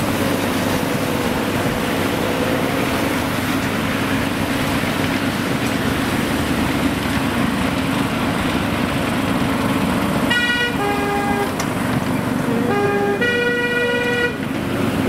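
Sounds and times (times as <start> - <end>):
miniature train rumbling: 0.0 - 15.0
two-tone locomotive horn: 10.2 - 11.7, 12.4 - 14.5.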